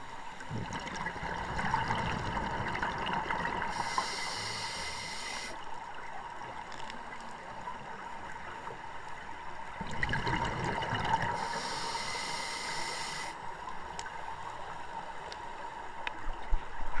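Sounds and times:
regulator hissing inhale: 3.7 - 5.6, 11.3 - 13.5.

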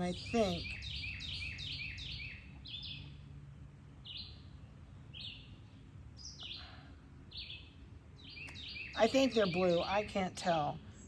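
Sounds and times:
small songbird chirping: 0.0 - 3.3, 4.0 - 11.0.

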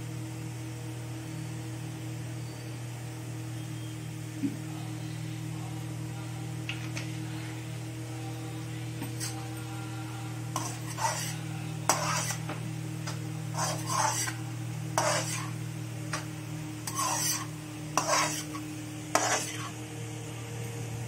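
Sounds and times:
steady low hum: 0.0 - 21.0
metal spatula scraping a pan: 9.1 - 9.5, 10.5 - 19.8.

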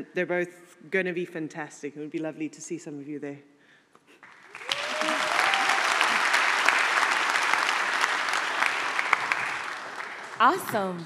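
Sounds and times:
audience applauding: 4.2 - 11.0
person cheering woo: 4.6 - 6.2.

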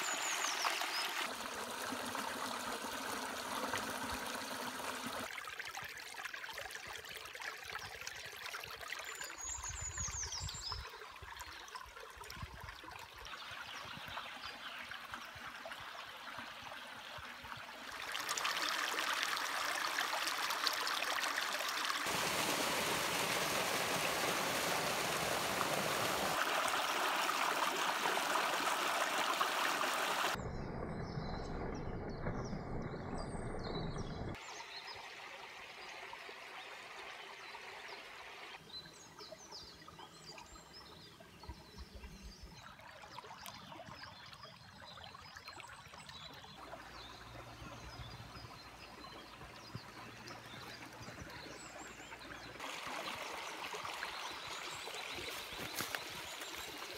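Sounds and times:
brook trickling over stones: 0.0 - 56.9.

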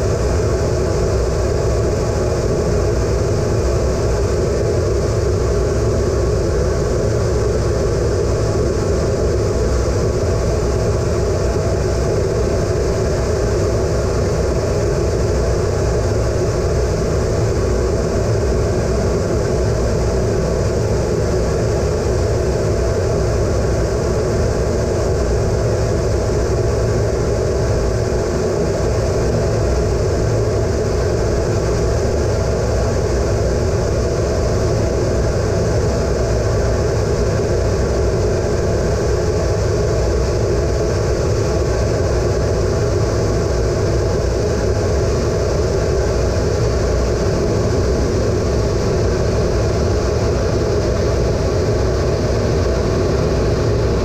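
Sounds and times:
jet cockpit engine drone: 0.0 - 54.0.

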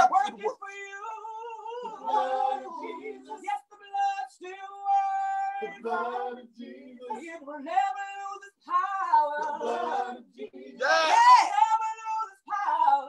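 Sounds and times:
woman singing slow melody: 3.4 - 5.9.

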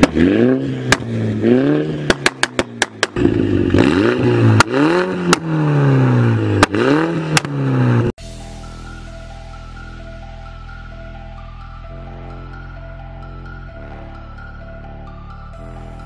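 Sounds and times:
exhaust pops and bangs: 0.0 - 0.2, 0.9 - 1.2, 2.0 - 3.3
car engine revving: 0.0 - 8.1, 11.8 - 16.0.

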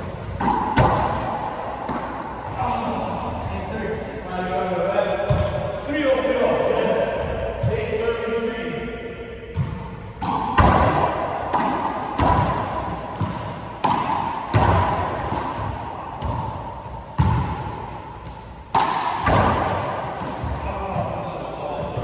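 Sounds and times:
handball smacking off walls: 9.6 - 21.1.

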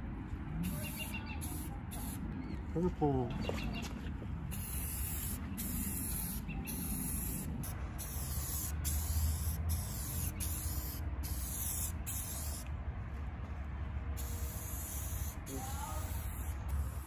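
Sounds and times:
spray paint hissing: 0.6 - 2.2, 4.5 - 12.7, 14.2 - 17.0.

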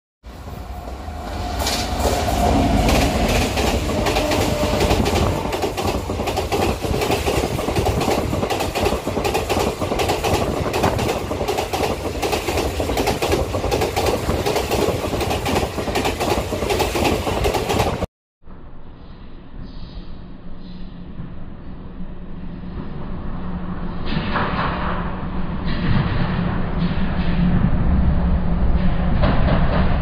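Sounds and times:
train rushing past: 0.2 - 18.1.

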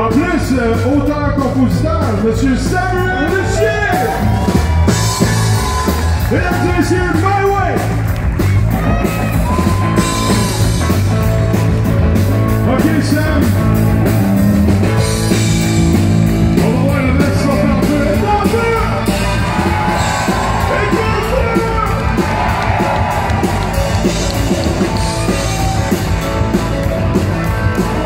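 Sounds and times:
bass guitar: 0.0 - 28.0
drums: 0.0 - 28.0
electric guitar: 7.8 - 28.0.

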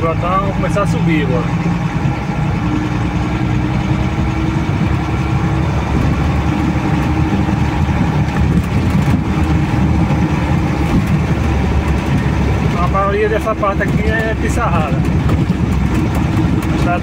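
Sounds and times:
car engine running: 0.0 - 17.0
car jolting knocks and rattles: 8.0 - 17.0.

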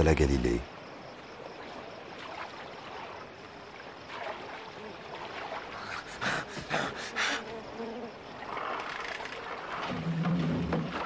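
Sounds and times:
water splashes: 0.0 - 11.0
lake water lapping: 0.9 - 11.0.

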